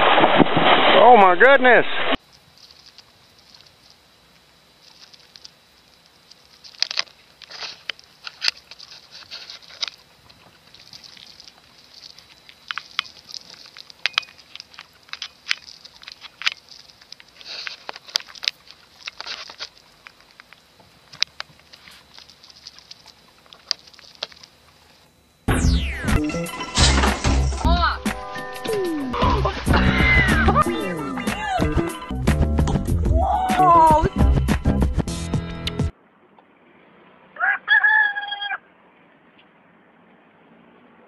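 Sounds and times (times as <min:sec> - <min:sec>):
light scratching and pattering: 0:02.3 - 0:25.0.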